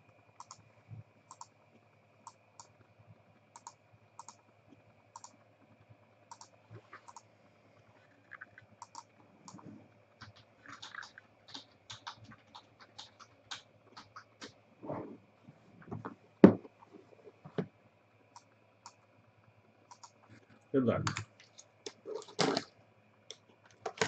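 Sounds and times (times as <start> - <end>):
keyboard typing clicks: 0.4 - 0.6, 1.3 - 1.5, 3.6 - 4.4, 6.3 - 7.3, 8.3 - 9.6, 10.2 - 14.6, 19.9 - 20.2.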